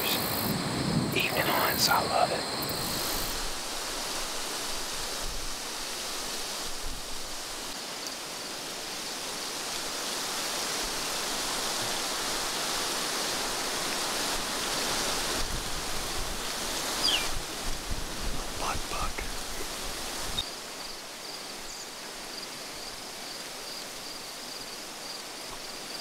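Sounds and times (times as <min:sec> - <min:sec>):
even rushing hiss: 0:00.0 - 0:20.5.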